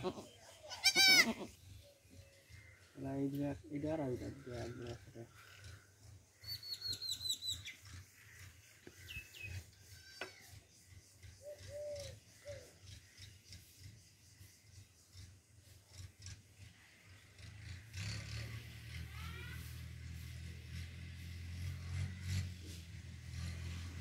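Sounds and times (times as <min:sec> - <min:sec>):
birds chirping: 0:00.0 - 0:09.6.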